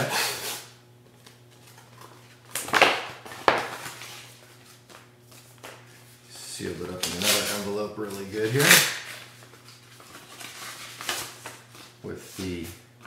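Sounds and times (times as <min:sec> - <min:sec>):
paper rustling and crinkling: 0:06.9 - 0:12.7.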